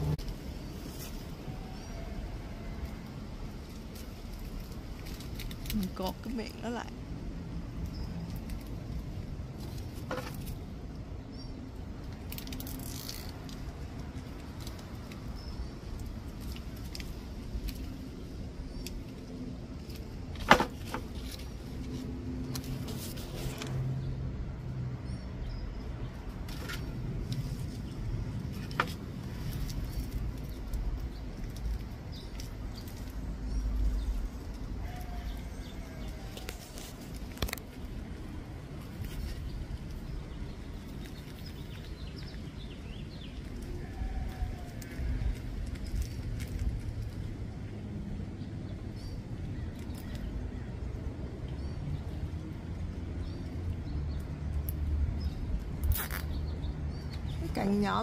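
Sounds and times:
low rumble: 0.0s - 0.6s.

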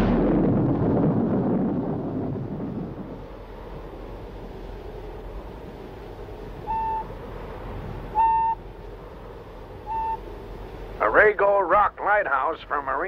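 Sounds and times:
steady low rumble: 0.0s - 13.0s
radio call tone beeps: 6.7s - 7.1s, 8.2s - 8.6s, 9.9s - 10.2s.

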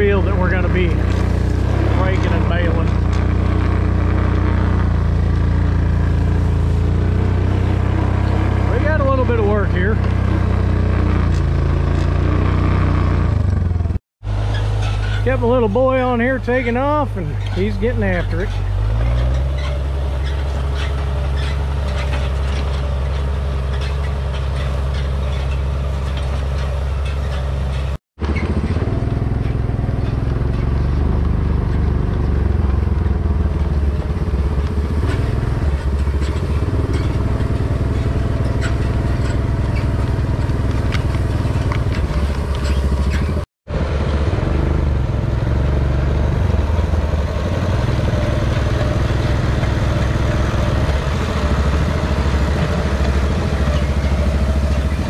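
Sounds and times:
hay rake rattling: 0.0s - 12.8s, 14.3s - 43.4s, 46.5s - 55.0s
tractor diesel engine running: 0.0s - 55.0s.

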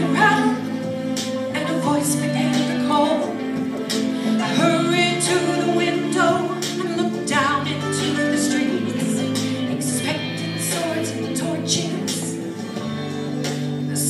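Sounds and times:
woman singing gospel song: 0.0s - 12.5s
instrumental accompaniment: 0.0s - 14.0s.

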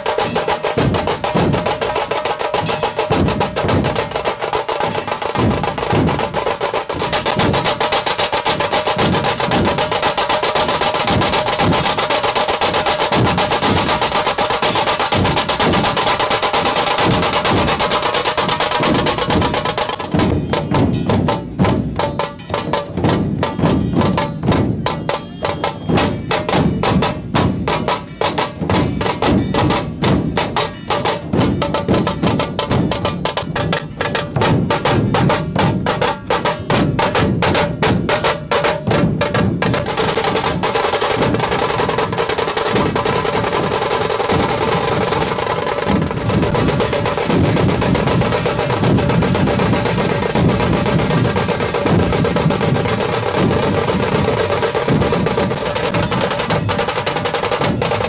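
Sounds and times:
deep barrel drum beats: 0.0s - 58.0s
fast stick strokes on drums: 0.0s - 58.0s.

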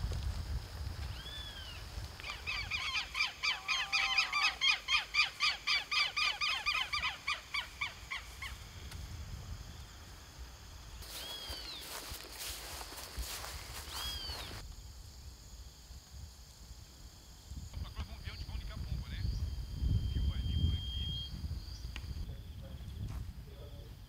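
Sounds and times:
high bird calls: 1.1s - 8.6s, 11.1s - 12.0s, 13.8s - 14.6s
lower bird call: 1.1s - 8.6s, 11.1s - 12.0s, 13.8s - 14.6s, 19.2s - 22.3s.

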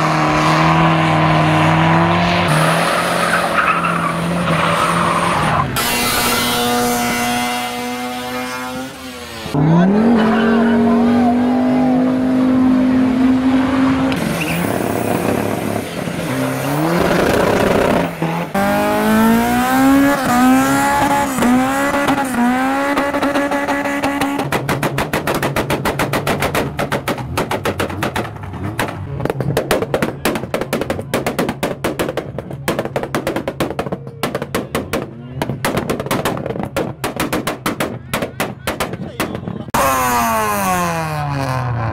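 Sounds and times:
car engines revving hard: 0.0s - 41.9s.

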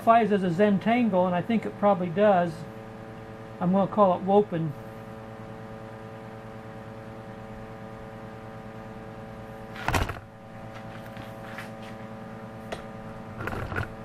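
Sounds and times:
electrical hum: 0.0s - 14.0s
hand scuffing over notebook: 10.7s - 12.1s.

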